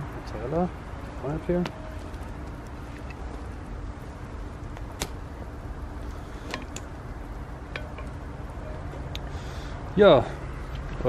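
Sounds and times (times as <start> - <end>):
low steady rumble: 0.0 - 11.0
metal ladle clicking on cast iron: 7.7 - 8.2.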